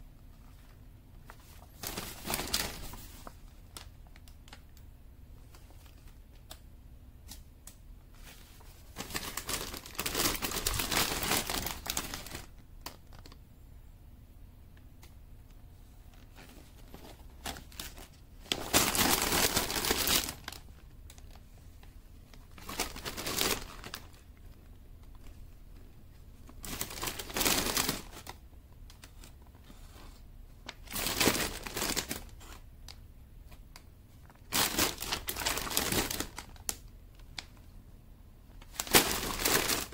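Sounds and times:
paper pages rustling: 8.1 - 13.4.

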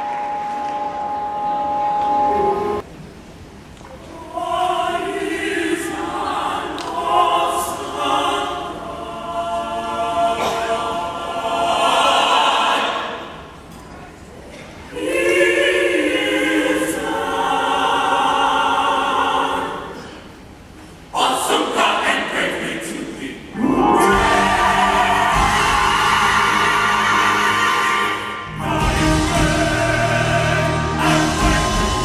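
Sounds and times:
choir singing held chords: 4.1 - 13.7, 14.8 - 20.4, 21.1 - 32.0.

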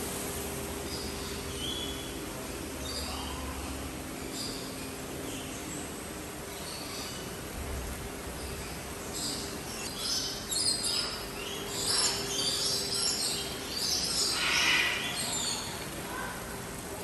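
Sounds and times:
faint steady hum: 0.0 - 17.0
birds chirping: 8.4 - 16.4.

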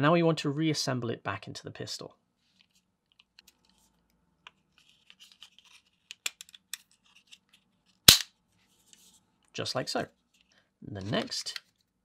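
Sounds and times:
pistol parts clicking and scraping: 4.8 - 8.3.

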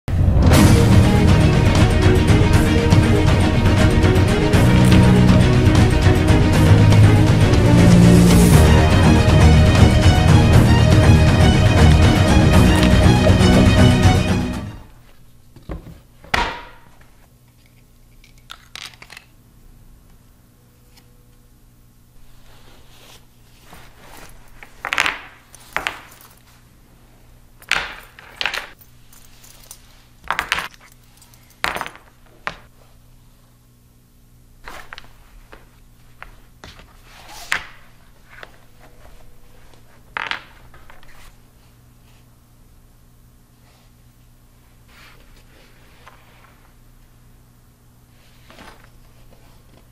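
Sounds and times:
fabric rustling: 22.2 - 27.3, 34.6 - 42.2.

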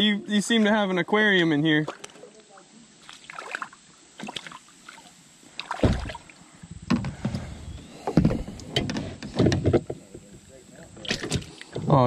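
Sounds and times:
thumps against plastic kayak hull: 5.8 - 6.2.

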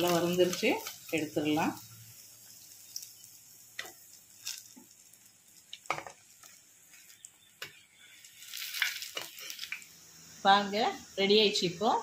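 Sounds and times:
oil sizzling: 0.0 - 12.0.

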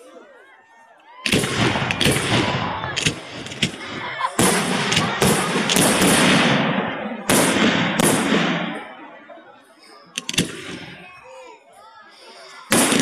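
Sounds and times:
fireworks bangs echoing: 1.3 - 9.1, 10.2 - 11.1, 12.7 - 13.0.

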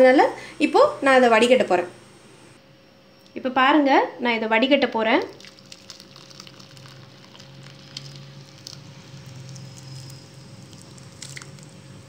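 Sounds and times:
liquid trickling into cloth: 5.2 - 11.8.

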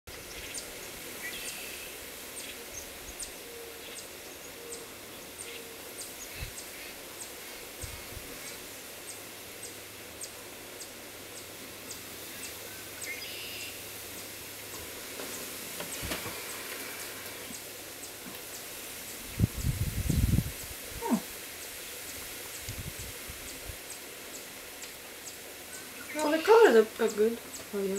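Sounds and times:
steady hiss: 0.1 - 27.9.

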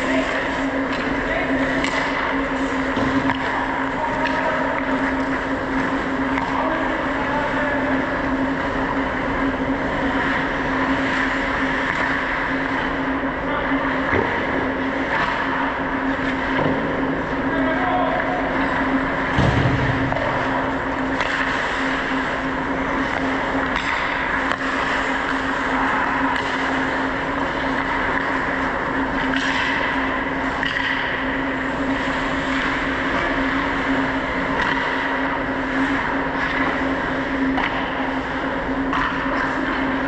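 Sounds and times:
hockey sticks and puck clacking: 0.0 - 7.4, 10.1 - 13.0, 15.0 - 16.8, 18.2 - 31.2, 31.8 - 38.1, 38.8 - 40.0
low hum: 0.0 - 40.0
heavy thump: 19.3 - 20.3.

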